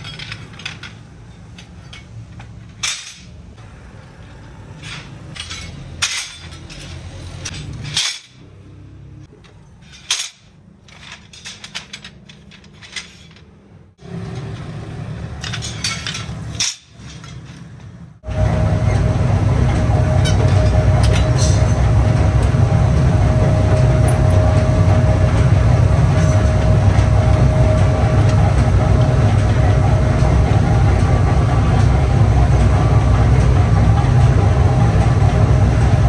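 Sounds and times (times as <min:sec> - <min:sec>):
low hum: 0:12.6 - 0:36.0.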